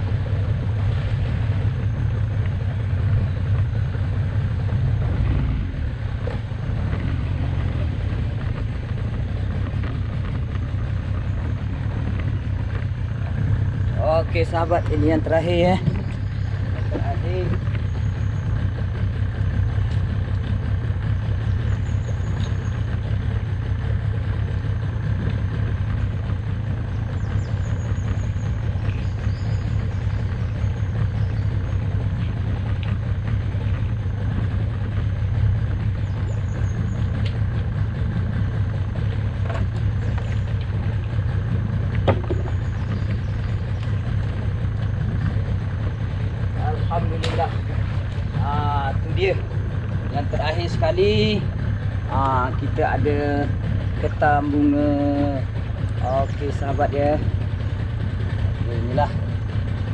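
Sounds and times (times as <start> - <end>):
outboard motor idling: 0.0 - 59.9.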